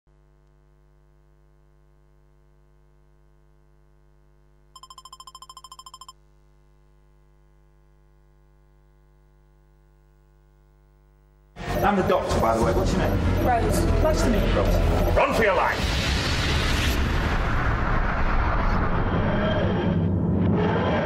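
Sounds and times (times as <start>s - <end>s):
rapid electronic beeping: 4.8s - 6.1s.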